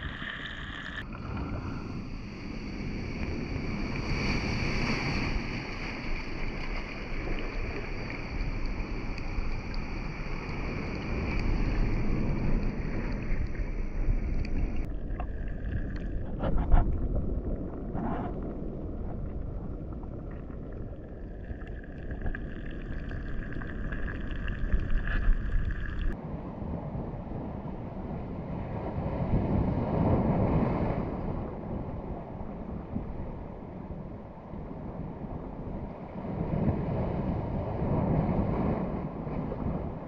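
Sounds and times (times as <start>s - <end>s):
wind on microphone: 0.0s - 20.2s, 21.0s - 40.0s
muffled underwater knocks and gurgles: 14.4s - 21.0s.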